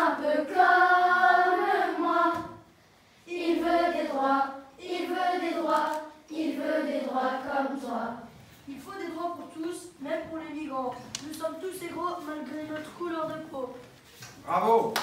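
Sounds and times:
children singing in chorus: 0.0s - 8.3s.

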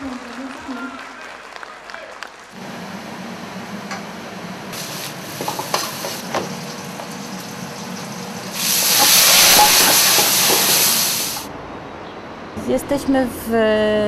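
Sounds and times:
wok sizzling: 2.6s - 11.5s.

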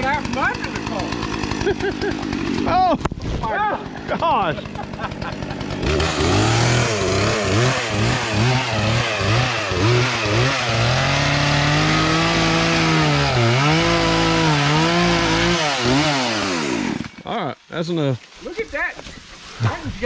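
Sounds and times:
chainsaw cutting wood: 0.0s - 17.4s.

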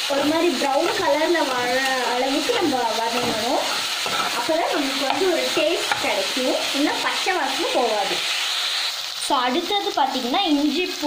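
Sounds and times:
onions sizzling in oil: 0.0s - 11.0s
metal spoon scraping pan: 0.6s - 8.3s.

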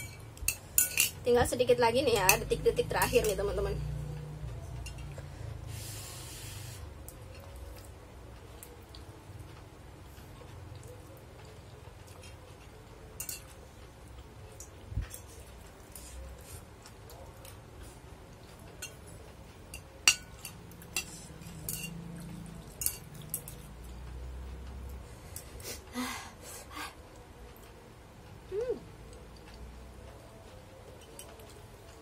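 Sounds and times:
spoon and chopsticks clinking plate: 0.0s - 1.2s, 13.1s - 13.6s, 18.8s - 19.1s, 19.7s - 22.1s, 22.7s - 23.7s.

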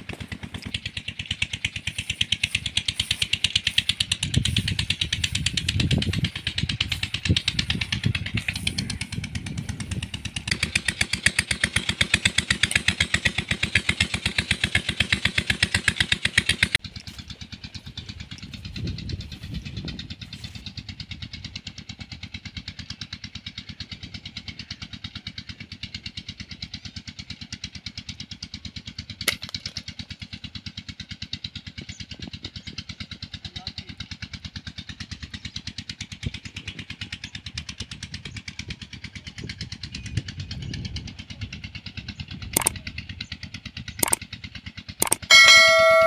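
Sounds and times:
engine chugging: 0.0s - 46.0s
sharp clicks: 42.5s - 42.8s, 44.0s - 44.2s, 45.0s - 45.5s.

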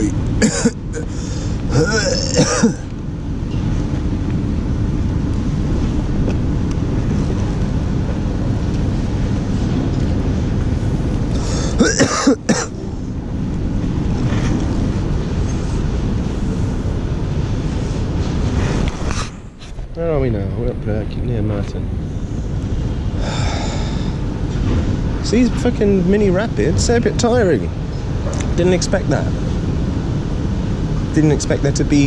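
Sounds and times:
steady low rumbling noise: 0.0s - 32.0s
man coughing: 0.4s - 2.9s, 11.5s - 12.8s.

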